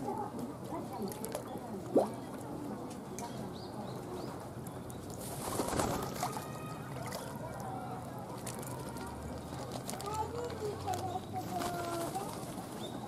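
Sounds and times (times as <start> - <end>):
distant voices: 0.0 - 13.0.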